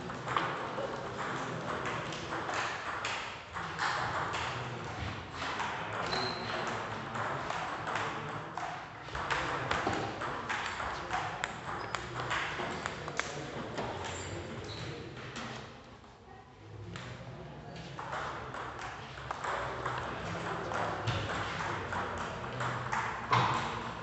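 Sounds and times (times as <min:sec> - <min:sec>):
ball bouncing on table: 0:05.4 - 0:14.1, 0:18.0 - 0:23.8.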